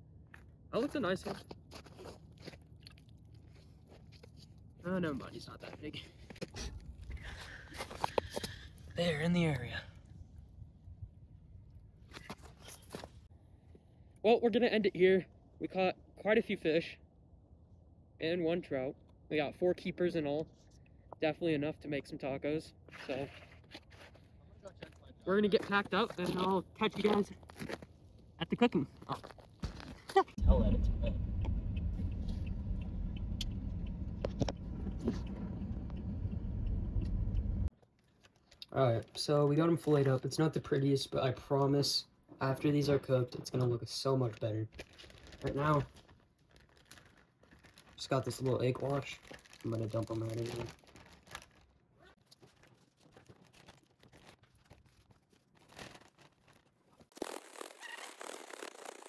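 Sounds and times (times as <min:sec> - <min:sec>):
car engine rumble: 0:30.4 - 0:37.7
plastic bag crinkling: 0:44.8 - 0:59.0.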